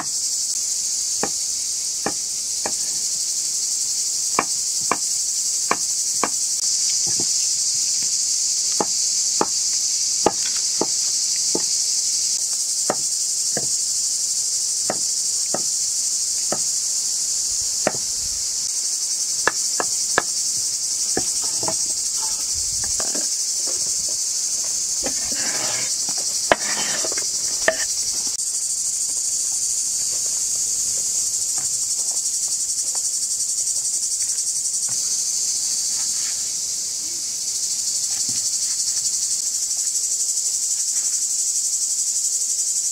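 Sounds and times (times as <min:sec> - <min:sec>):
insects chirring: 0:00.0 - 0:42.9
knife tapping on cutting board: 0:26.5 - 0:27.8.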